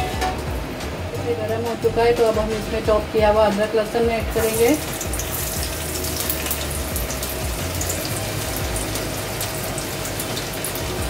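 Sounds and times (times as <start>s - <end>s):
garlic sizzling in hot oil: 3.8s - 11.0s
oil popping: 4.4s - 11.0s.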